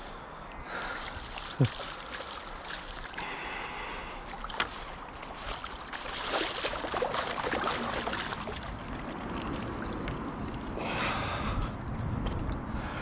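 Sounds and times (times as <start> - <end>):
fish splashing in water: 0.8 - 3.4, 4.2 - 10.8.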